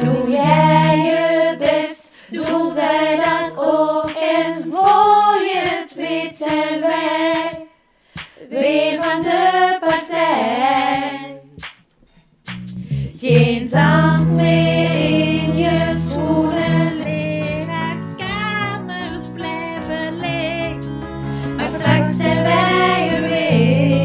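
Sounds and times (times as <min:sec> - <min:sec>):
women singing together: 0:00.0 - 0:11.6, 0:13.2 - 0:20.7, 0:21.6 - 0:24.0
hand claps: 0:00.4 - 0:06.7, 0:07.3 - 0:08.4, 0:10.8 - 0:12.9.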